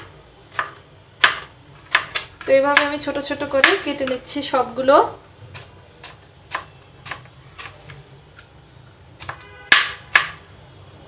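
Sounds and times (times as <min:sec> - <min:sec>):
knife chopping on plastic board: 0:00.0 - 0:04.3, 0:05.5 - 0:08.5, 0:09.2 - 0:10.4.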